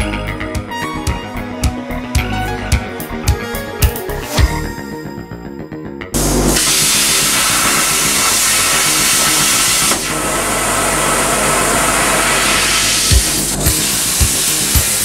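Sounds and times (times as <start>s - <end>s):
plasma cutter torch hissing: 6.2s - 15.0s.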